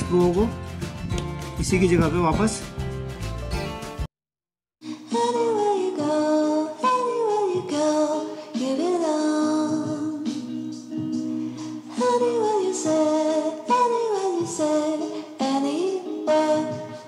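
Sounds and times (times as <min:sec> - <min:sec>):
song with singing: 0:04.9 - 0:17.0.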